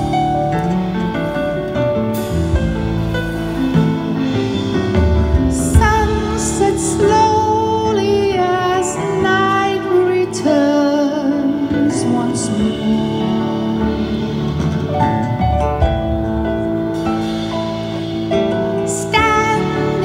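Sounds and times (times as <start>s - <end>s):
bass: 0.0s - 20.0s
drums: 0.0s - 20.0s
keyboards: 0.0s - 20.0s
woman singing: 5.5s - 14.9s, 18.8s - 20.0s.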